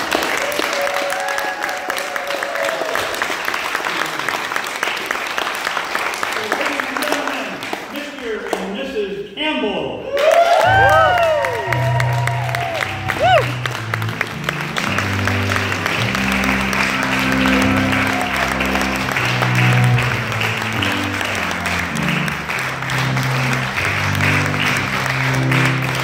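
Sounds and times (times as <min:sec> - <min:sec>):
audience applauding: 0:00.0 - 0:08.8, 0:10.1 - 0:26.0
music with low bass notes: 0:11.8 - 0:26.0.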